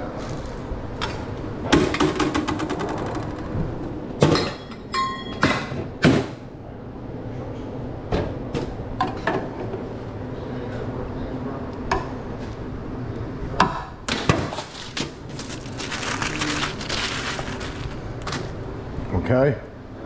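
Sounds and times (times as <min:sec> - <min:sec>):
utensils and containers clattering: 0:14.4 - 0:18.6.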